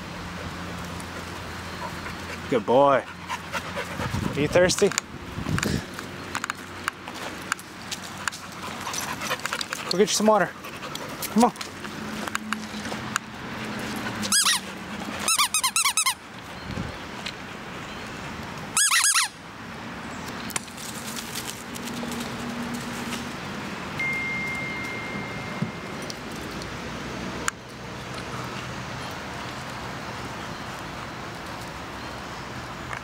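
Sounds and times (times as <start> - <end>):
squeaky dog toy squeaking: 14.3 - 16.2, 18.8 - 19.4.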